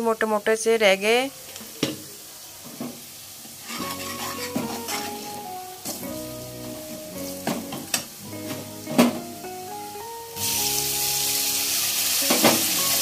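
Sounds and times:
spices sizzling in oil: 0.0 - 13.0
ladle scraping against pan: 3.6 - 5.4
soft background music: 3.7 - 13.0.

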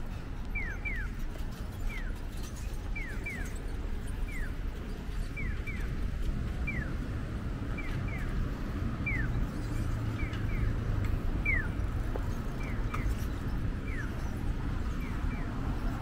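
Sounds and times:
low traffic rumble: 0.0 - 16.0.

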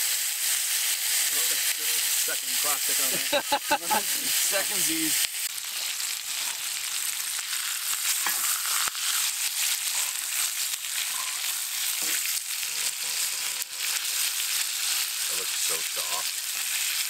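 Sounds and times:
steaks sizzling in a skillet: 0.0 - 17.0
utensils clicking on a pan: 8.0 - 17.0.

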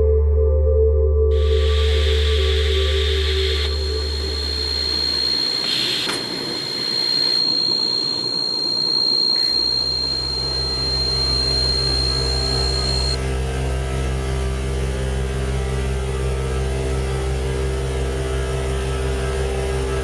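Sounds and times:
deep low hum: 0.0 - 5.6, 9.6 - 20.0
high sine tone: 1.3 - 13.3.

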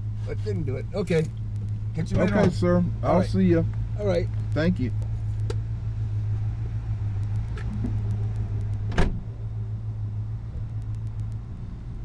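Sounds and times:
car engine idling: 0.0 - 12.0
car door thudding shut: 8.9 - 9.2.

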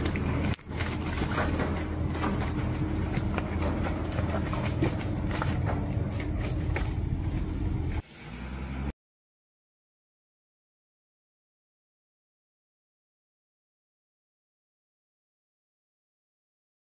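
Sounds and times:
truck engine running at low revs: 0.0 - 8.9.

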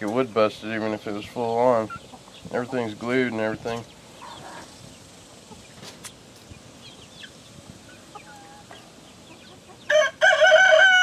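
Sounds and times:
rooster crowing: 9.9 - 11.0.

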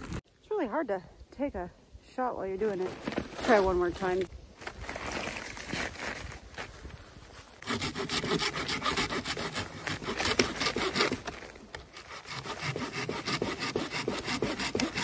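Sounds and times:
hand saw cutting branch: 7.6 - 15.0.

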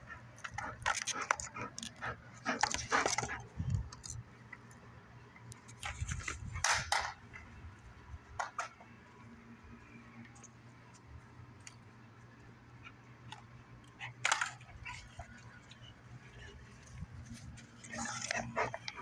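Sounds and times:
dog panting: 0.0 - 3.6, 18.0 - 19.0.

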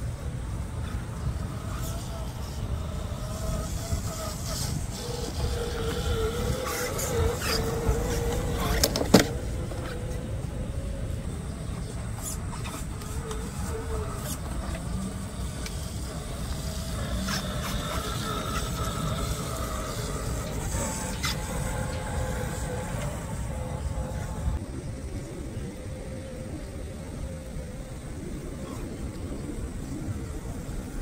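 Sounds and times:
small electric motor whining: 0.0 - 31.0.

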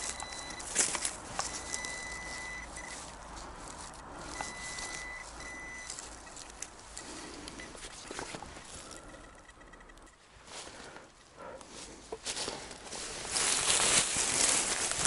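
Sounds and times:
metal detector beeping: 0.0 - 10.3
rustling: 0.0 - 15.0.

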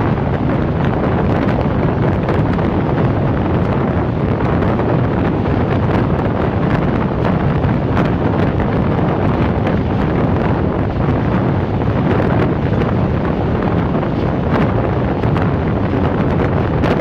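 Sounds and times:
train rumbling along track: 0.0 - 17.0
wind buffeting microphone: 0.0 - 17.0.

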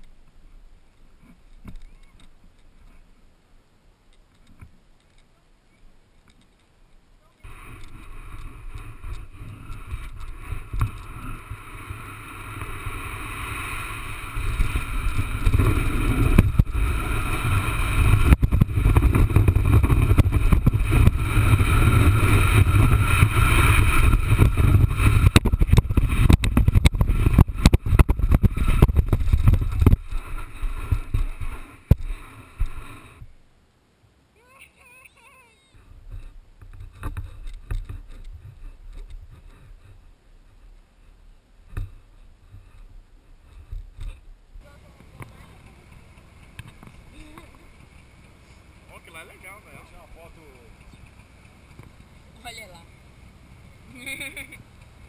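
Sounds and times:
wind buffeting microphone: 7.4 - 33.3
sand hissing under sandboard: 7.5 - 33.3.

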